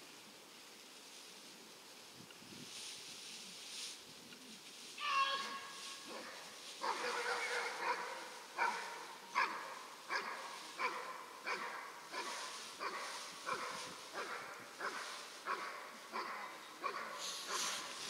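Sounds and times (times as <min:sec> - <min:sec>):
dog barking: 0:06.1 - 0:17.9.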